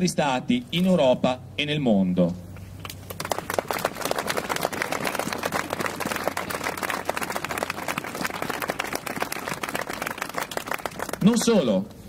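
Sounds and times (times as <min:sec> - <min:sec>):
crowd applauding: 0:03.0 - 0:11.7.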